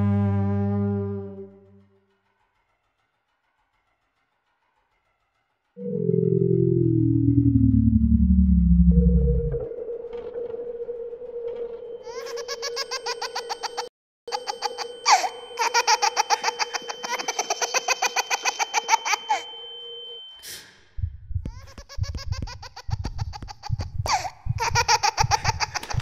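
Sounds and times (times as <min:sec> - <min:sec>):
low pulsing beat: 0:05.8 - 0:12.1, 0:20.9 - 0:26.0
electronic tone: 0:05.8 - 0:12.7
high-pitched laughter: 0:12.1 - 0:19.5, 0:21.5 - 0:26.0.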